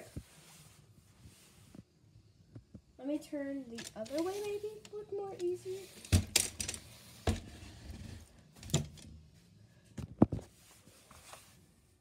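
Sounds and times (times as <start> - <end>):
toy stroller rustling and knocking: 3.7 - 8.0.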